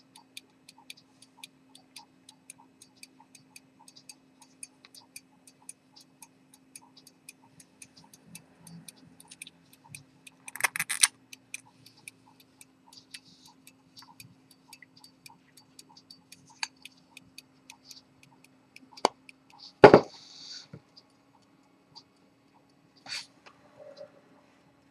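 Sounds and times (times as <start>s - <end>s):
pocket watch ticking: 0.0s - 19.8s
faint steady hum: 0.0s - 24.9s.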